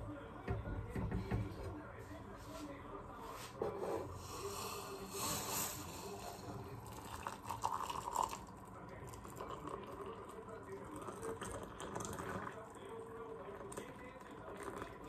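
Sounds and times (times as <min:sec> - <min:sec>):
knock: 0:00.5 - 0:01.6
hot water pouring into a mug: 0:04.2 - 0:15.0.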